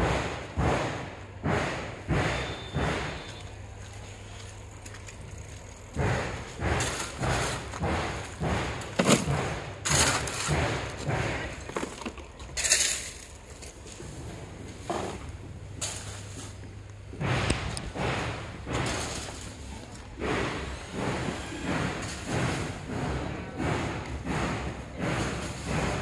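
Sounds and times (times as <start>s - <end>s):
stones rattling into a wheelbarrow: 2.4s - 16.7s, 18.7s - 20.0s
shovel scooping gravel: 3.9s - 14.1s, 15.8s - 16.7s.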